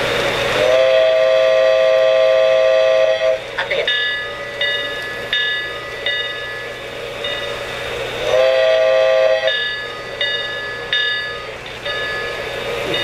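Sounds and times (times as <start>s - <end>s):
train horn chord: 0.6s - 3.5s, 8.2s - 9.6s
model train bell ringing: 3.7s - 7.8s, 8.8s - 13.0s.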